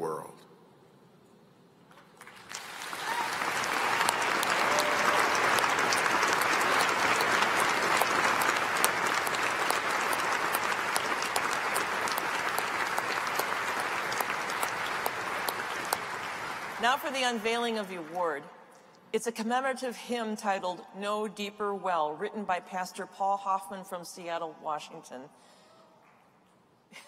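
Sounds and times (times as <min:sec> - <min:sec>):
audience applauding: 0:02.2 - 0:18.3.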